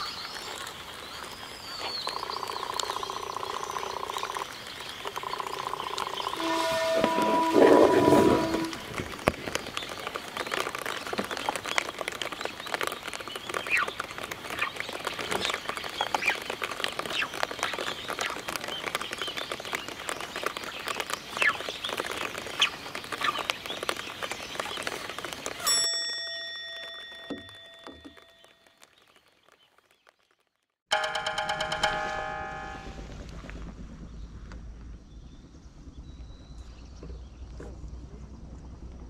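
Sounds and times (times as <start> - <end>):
light rain pattering on pond: 0.0 - 7.5, 8.4 - 30.8
bell-like chime: 25.7 - 28.6, 30.9 - 33.1.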